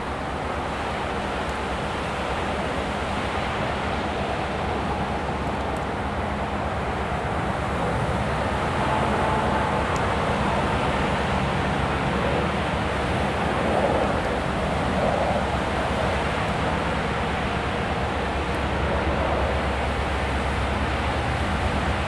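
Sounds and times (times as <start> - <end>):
broad rushing noise: 0.0 - 22.0
diesel locomotive engine drone: 0.0 - 22.0.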